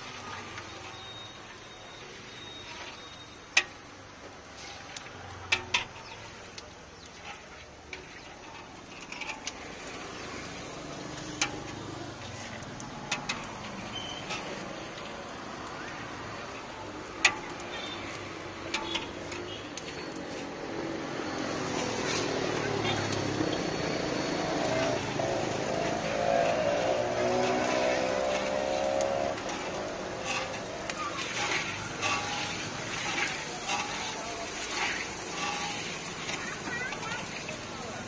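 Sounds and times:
street traffic hum: 0.0 - 38.0
metal ladle clinking on pan: 18.7 - 19.4, 29.4 - 36.4.

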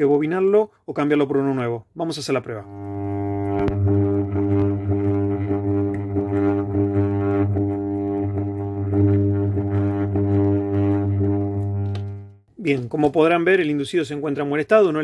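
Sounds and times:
armature tester humming: 2.6 - 12.4.

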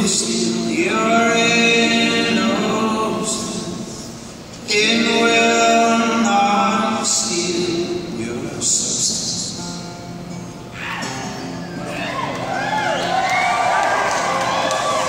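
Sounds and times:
group singing a slow song: 0.0 - 9.0.

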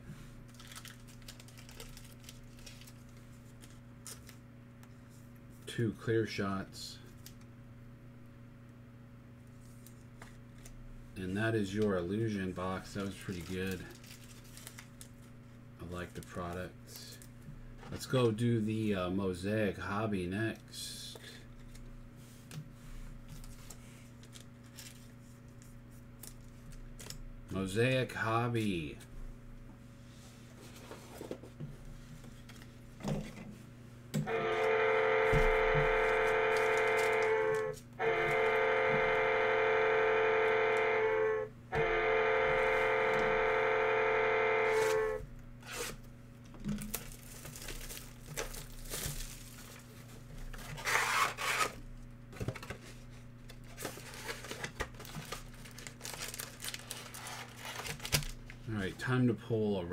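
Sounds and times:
plastic wrap crinkling and tearing: 0.5 - 4.4, 12.8 - 15.6, 23.4 - 27.2, 46.7 - 51.8, 52.6 - 58.6
long steady electronic tones: 34.2 - 45.3.

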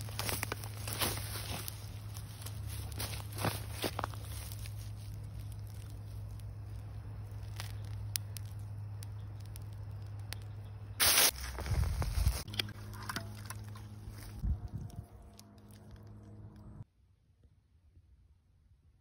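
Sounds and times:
faint crackles and ticks: 3.8 - 10.7.

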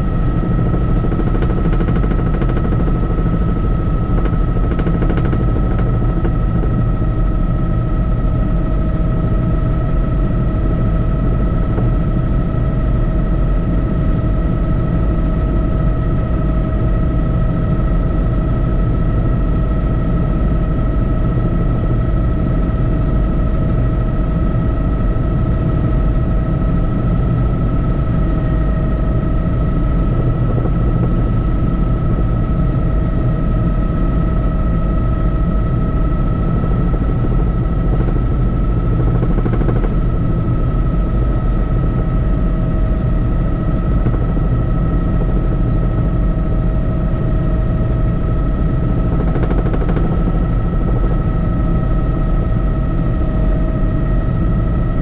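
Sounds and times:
helicopter rotor chop: 0.0 - 55.0
high whine: 27.8 - 53.1.

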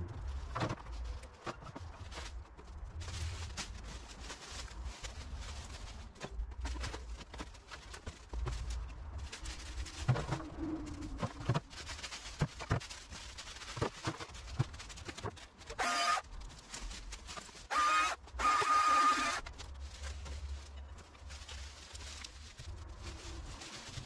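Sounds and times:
leafy branches rustling and snapping: 0.2 - 24.0
battery chainsaw whining: 15.8 - 16.2, 17.7 - 19.4.

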